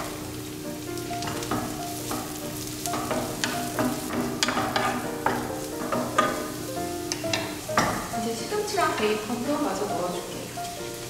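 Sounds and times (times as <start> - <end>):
vegetables sizzling in frying pan: 0.0 - 11.0
wooden spatula scraping pan: 1.2 - 6.6.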